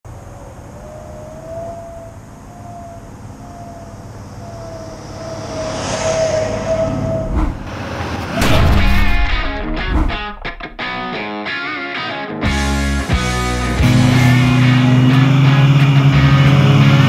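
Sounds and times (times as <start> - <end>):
low rumbling drone: 1.4 - 11.1
wavering held tone: 3.5 - 7.4
rising whoosh: 4.0 - 11.2
low hit: 5.0 - 11.2.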